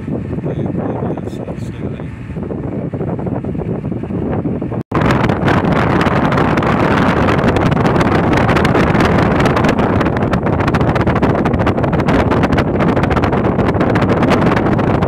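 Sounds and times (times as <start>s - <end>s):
boat rumble: 0.0s - 15.0s
wind buffeting microphone: 0.0s - 15.0s.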